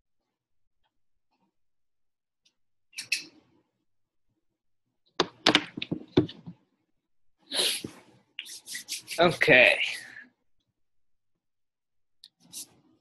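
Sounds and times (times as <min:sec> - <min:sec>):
sharp knocks and clicks: 0:05.2 - 0:06.6.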